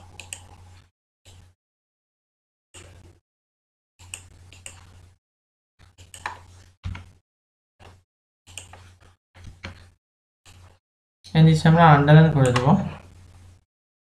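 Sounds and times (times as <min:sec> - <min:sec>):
computer mouse clicking: 0:00.2 - 0:00.6
low electrical hum: 0:10.6 - 0:13.6.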